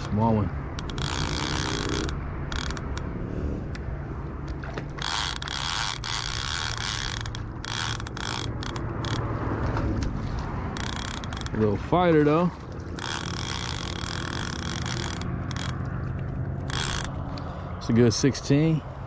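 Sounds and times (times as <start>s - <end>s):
fishing reel clicking whir: 0.7s - 3.1s, 4.5s - 9.4s, 10.7s - 11.7s, 12.8s - 15.9s, 16.6s - 17.5s.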